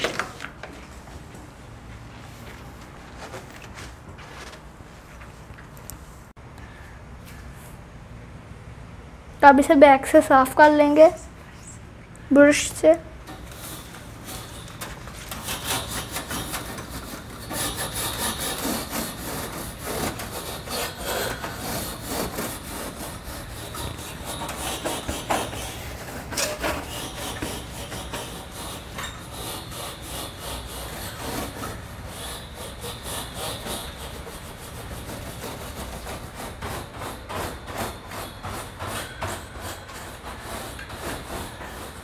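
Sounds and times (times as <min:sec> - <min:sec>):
brush scrubbing metal coil: 0:13.3 - 0:42.0.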